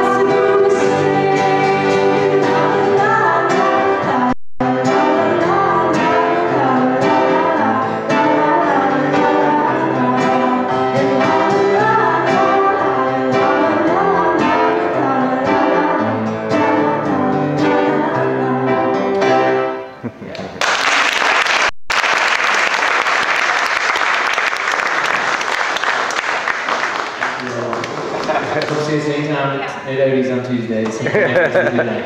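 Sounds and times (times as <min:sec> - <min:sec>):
woman singing: 0:00.0 - 0:19.2.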